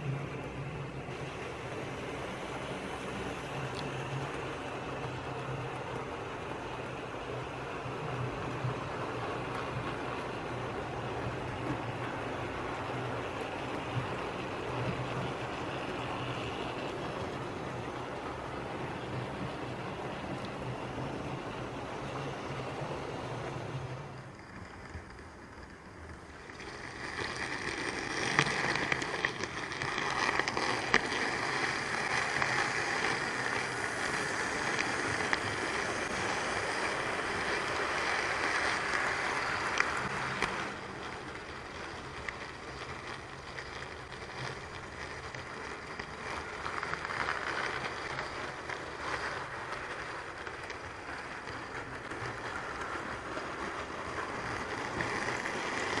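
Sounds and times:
light track clicks: 0.0 - 56.0
model train rolling on rails: 0.0 - 56.0.

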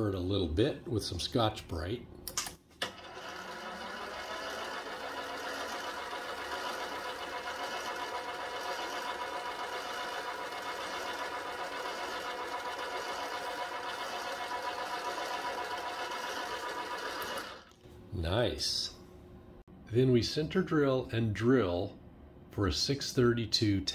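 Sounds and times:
metal lathe whining: 2.8 - 17.7.

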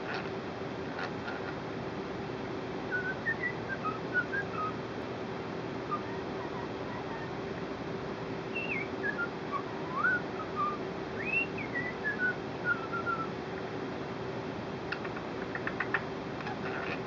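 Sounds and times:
parakeet whistling: 2.9 - 4.8, 5.9 - 7.6, 8.5 - 13.3.

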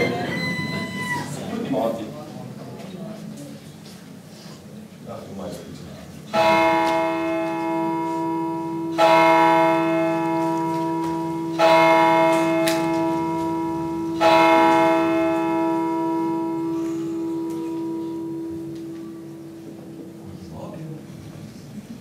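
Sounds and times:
large bell tolling: 6.3 - 20.7.

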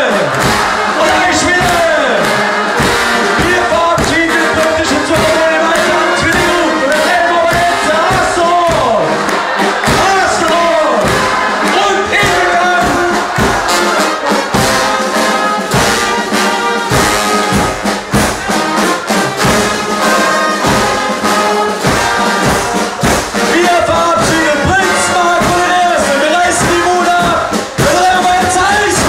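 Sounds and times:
brass carnival music: 0.0 - 29.0
steady drum beat: 0.0 - 29.0.

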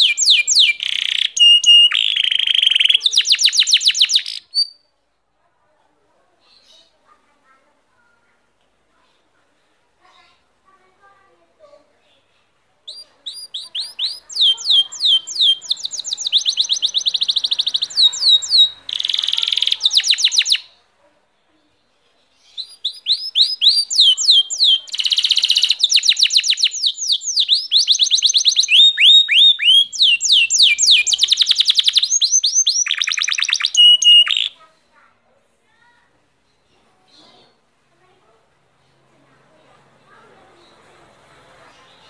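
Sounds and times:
canary singing trills: 0.0 - 4.9, 12.8 - 20.9, 22.2 - 34.7.

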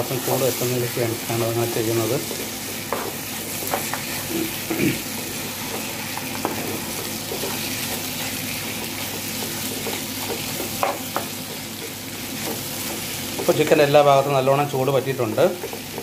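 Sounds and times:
chicken sizzling in a pan: 0.0 - 16.0
wooden spatula knocking pan: 1.6 - 13.8.

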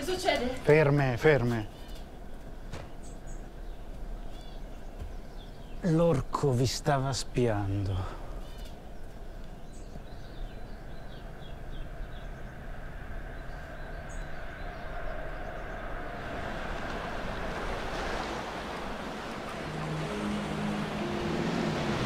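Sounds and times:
wind: 0.0 - 22.0
faint bird chirps: 1.6 - 6.6, 8.1 - 16.0
low rumbling noise: 8.9 - 22.0
waves: 14.0 - 22.0.

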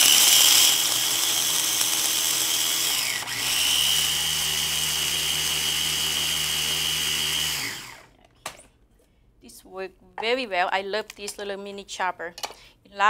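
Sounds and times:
mini chopper motor whining: 0.0 - 8.1.

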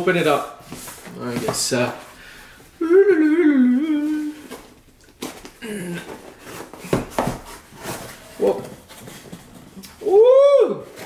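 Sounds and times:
man humming: 2.8 - 4.6, 5.6 - 6.2.

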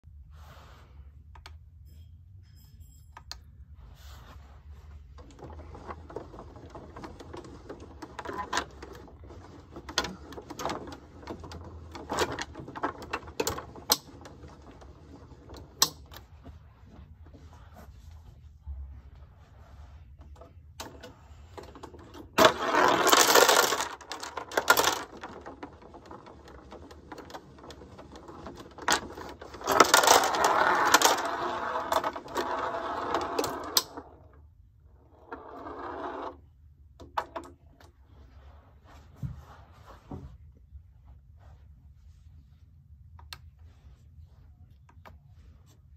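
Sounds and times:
plastic pins clattering and rattling: 5.2 - 16.2, 20.8 - 34.0.

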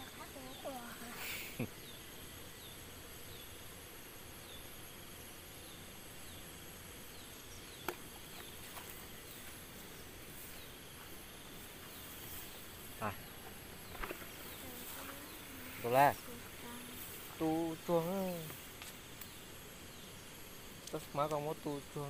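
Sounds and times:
insect high drone: 0.0 - 22.0.

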